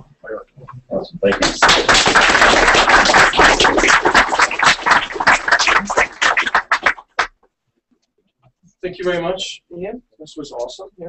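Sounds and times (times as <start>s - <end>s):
audience applause: 1.3s - 7.3s.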